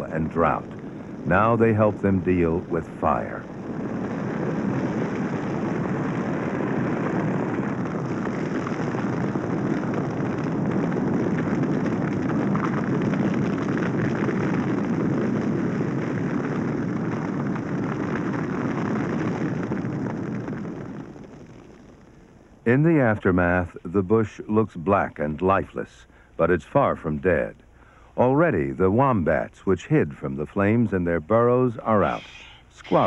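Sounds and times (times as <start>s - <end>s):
roar of flames with crackling: 0.0s - 33.0s.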